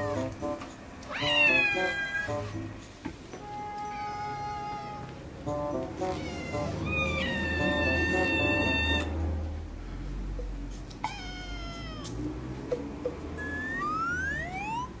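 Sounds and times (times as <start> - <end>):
kitten meowing loudly: 1.1 - 2.3, 6.2 - 9.1, 11.0 - 12.2.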